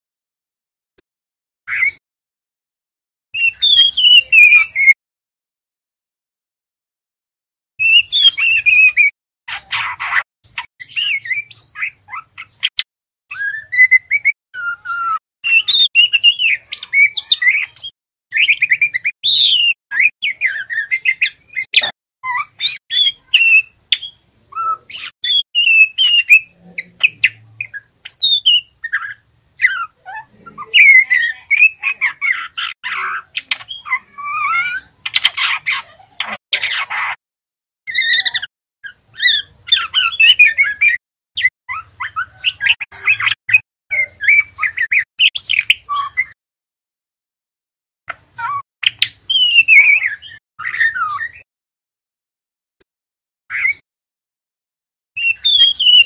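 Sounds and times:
bird twittering: 3.4 - 5.0, 7.8 - 37.2, 37.9 - 46.4, 48.1 - 51.4, 55.2 - 56.0.

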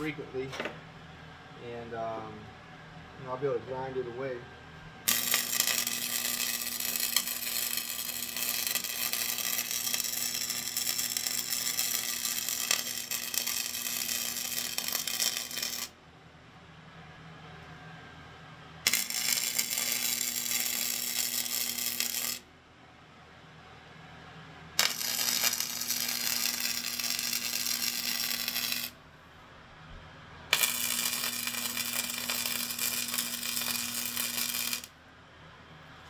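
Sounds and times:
arc welding crackling and sizzling: 0.0 - 0.5, 5.0 - 16.0, 18.8 - 22.4, 24.8 - 29.0, 30.5 - 34.9.

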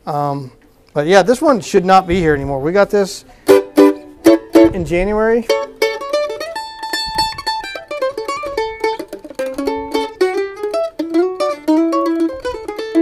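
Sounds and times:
mandolin picked notes: 2.6 - 13.0.

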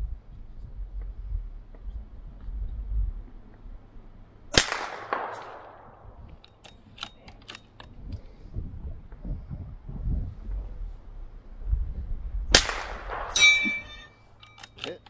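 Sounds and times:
rifle shot echoing: 4.5 - 6.2, 12.5 - 14.0.

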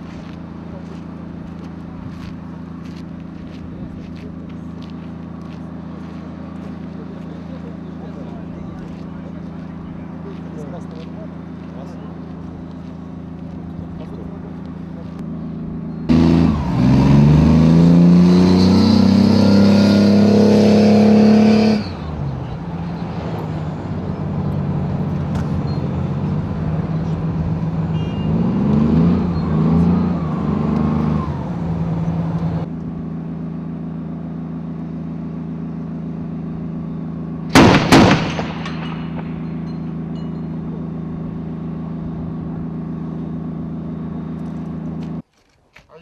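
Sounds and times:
diesel engine revving: 0.0 - 45.2
loud burst of sharp cracks: 37.5 - 39.5.

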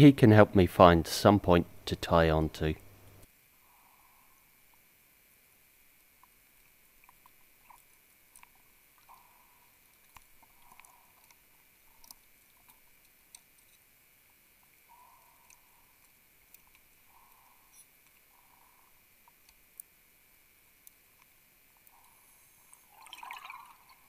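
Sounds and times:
faint steady high whine: 0.0 - 24.0
faint underwater clicks: 6.0 - 20.0.

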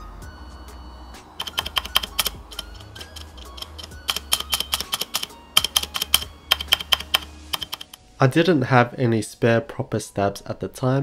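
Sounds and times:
soft background music: 0.0 - 11.0
keyboard stabilizer clacking: 1.4 - 8.0.

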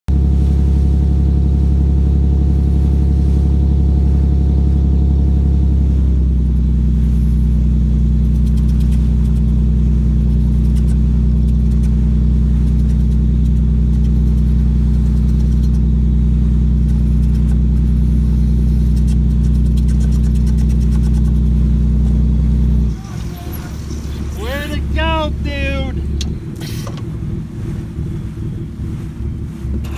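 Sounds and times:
boat engine droning: 0.1 - 29.9.

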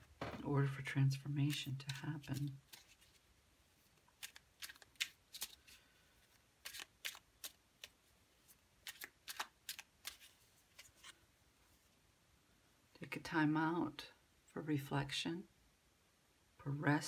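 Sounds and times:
cards shuffling and clicking: 1.4 - 11.2.

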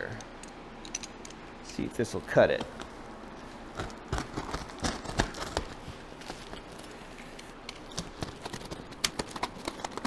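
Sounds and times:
box cutter slitting tape: 3.9 - 5.8.

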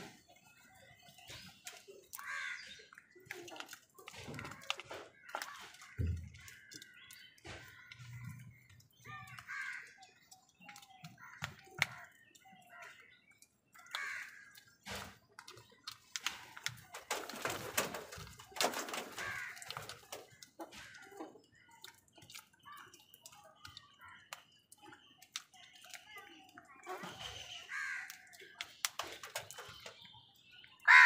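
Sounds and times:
noisy flurry of crows: 0.1 - 24.5, 26.8 - 30.0
crows cawing: 2.2 - 2.8, 9.2 - 10.0, 13.8 - 14.6, 18.6 - 21.4, 27.6 - 28.4.

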